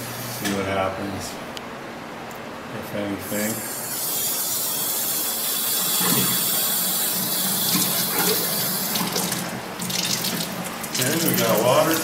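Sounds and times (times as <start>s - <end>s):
water rushing through pipes: 5.0s - 12.0s.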